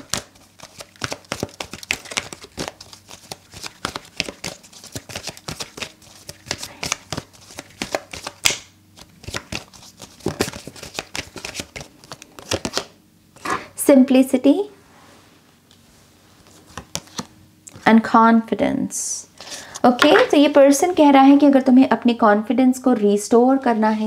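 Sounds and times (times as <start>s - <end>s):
cards being shuffled: 0.0s - 12.9s, 16.4s - 17.8s.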